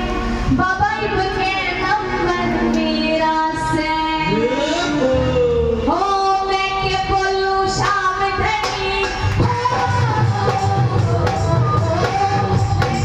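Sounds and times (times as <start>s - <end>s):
musical accompaniment: 0.0s - 13.0s
person singing devotional song: 5.9s - 13.0s.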